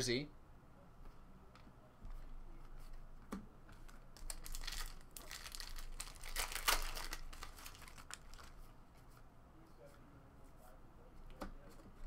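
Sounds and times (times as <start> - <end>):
foil wrapper crinkling and tearing: 4.2 - 8.6.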